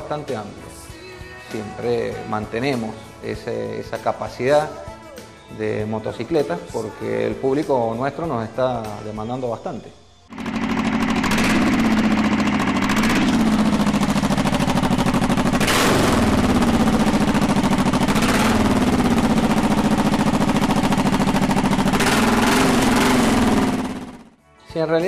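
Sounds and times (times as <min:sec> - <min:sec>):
motorcycle engine idling and revving: 0:10.3 - 0:24.4.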